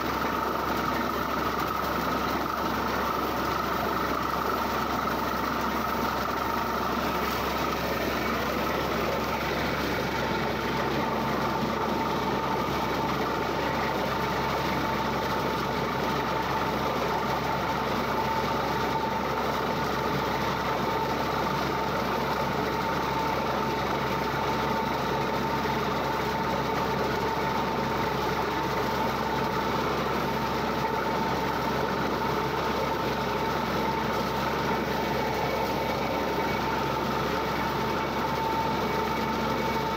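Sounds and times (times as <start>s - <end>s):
drilling rig machinery noise: 0.0s - 39.9s
steady machine whine: 0.0s - 39.9s.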